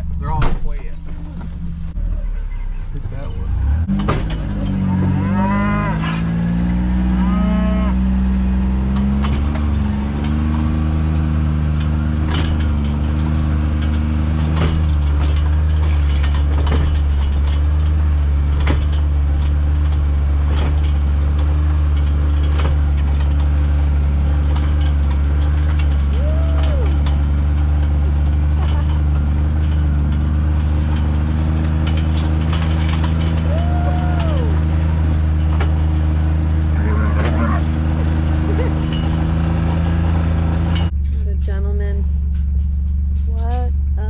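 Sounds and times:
vehicle engine running: 0.0s - 44.0s
cattle mooing: 4.7s - 8.8s, 36.5s - 38.6s.

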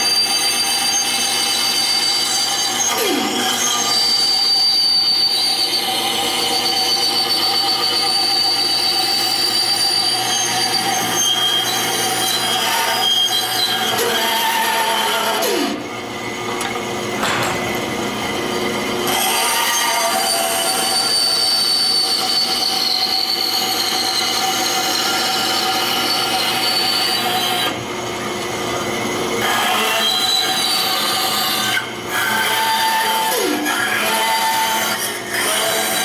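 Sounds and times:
bandsaw running: 0.0s - 27.8s
bandsaw blade cutting wood: 19.0s - 23.2s, 29.4s - 36.0s.

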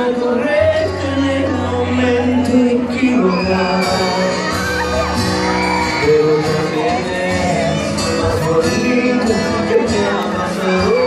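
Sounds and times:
live pop band playing: 0.0s - 11.0s
man singing lead vocal: 0.0s - 11.0s
crowd whooping and shouting: 1.9s - 8.6s, 10.3s - 11.0s.

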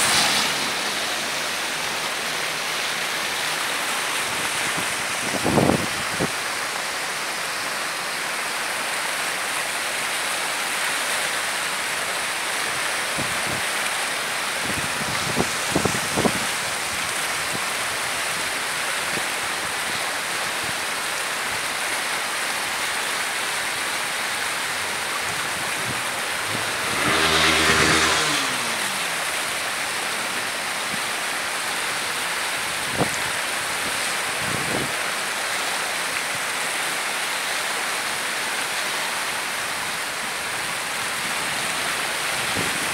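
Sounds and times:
vehicle passing by: 0.0s - 4.5s, 24.8s - 30.9s
floodwater rushing down canal: 0.0s - 42.9s.

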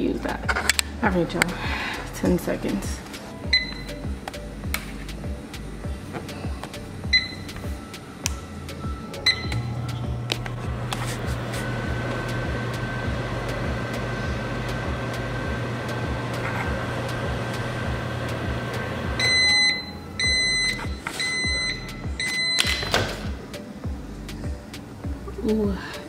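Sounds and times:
microwave beeps: 3.5s - 4.1s, 7.1s - 7.6s, 8.9s - 10.2s, 18.8s - 23.2s
microwave oven humming: 6.8s - 23.4s.

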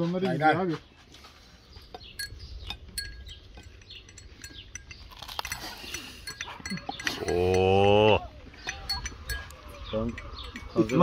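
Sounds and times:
cutlery clicks and clinks: 2.2s - 7.9s
person chewing: 2.8s - 9.7s.

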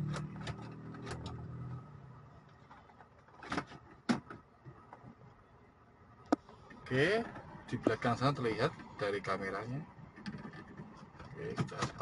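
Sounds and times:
car engine humming: 0.0s - 3.0s.

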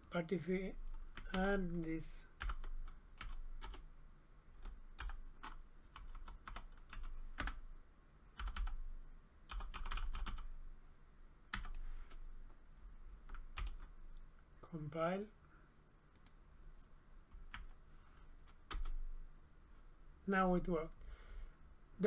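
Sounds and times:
typing on computer keyboard: 2.4s - 3.8s, 4.6s - 7.6s, 8.4s - 8.8s, 9.5s - 10.5s, 13.2s - 13.9s, 18.5s - 19.0s.

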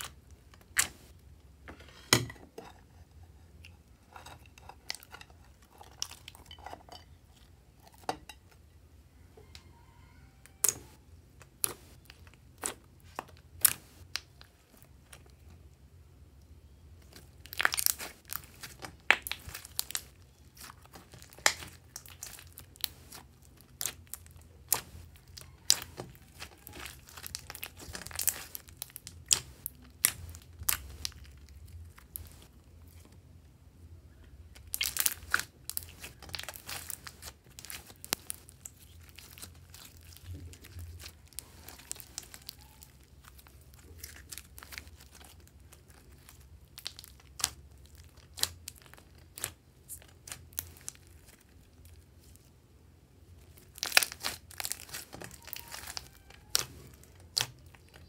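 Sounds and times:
slime crackling and popping: 0.0s - 1.2s, 10.5s - 15.4s, 17.0s - 32.5s, 34.5s - 52.5s, 53.3s - 58.0s.

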